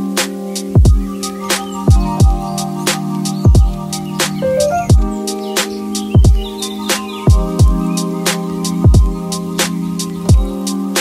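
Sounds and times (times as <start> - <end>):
held synth chord: 4.4 - 5.4
deep kick drums: 4.9 - 5.1.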